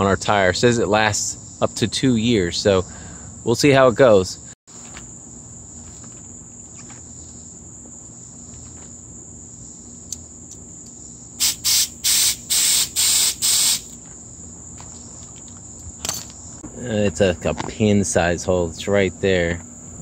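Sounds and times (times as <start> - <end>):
insect trill: 0.0 - 20.0
bicycle pump hissing strokes: 11.4 - 14.0.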